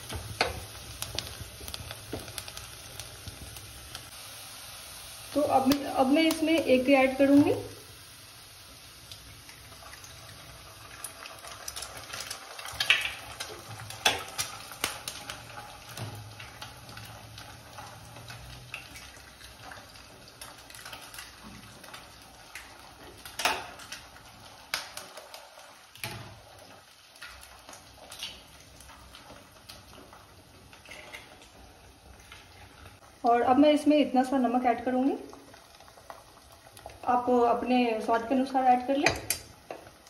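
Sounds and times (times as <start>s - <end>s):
faint sizzle from a pan: 0.0s - 40.0s
eggshell and utensil taps on a pan: 39.0s - 39.8s.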